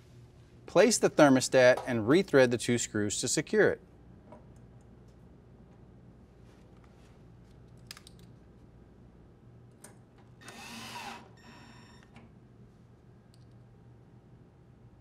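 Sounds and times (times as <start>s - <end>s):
light clicks of parts handled: 6.6s - 8.4s
drill driver whirring: 10.4s - 12.0s.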